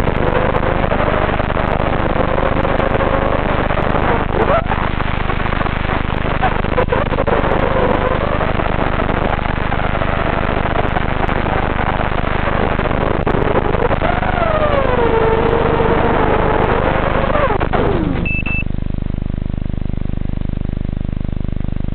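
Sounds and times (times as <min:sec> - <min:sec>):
steady electrical buzz: 0:00.0 - 0:21.9
quadcopter motors whining: 0:14.2 - 0:18.3
high beep: 0:18.2 - 0:18.7.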